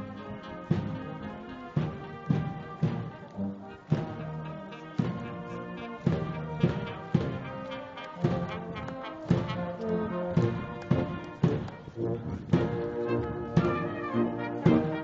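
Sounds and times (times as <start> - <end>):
brass band playing a march: 0.0 - 15.0
drum struck on the beat: 0.7 - 3.2, 5.0 - 9.7, 10.4 - 11.8, 13.5 - 14.0.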